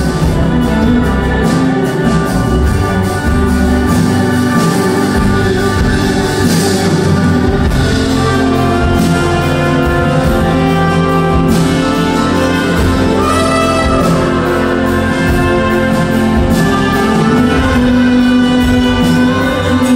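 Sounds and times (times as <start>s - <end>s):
live band playing: 0.0s - 19.9s.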